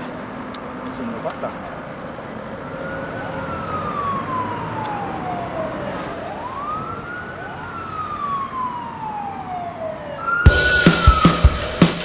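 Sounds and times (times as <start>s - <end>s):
siren wailing: 2.8s - 12.0s.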